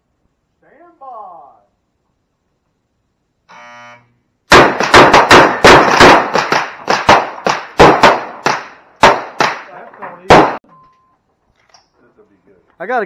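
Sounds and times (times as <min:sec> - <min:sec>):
rapid pistol shots: 0:04.5 - 0:10.6.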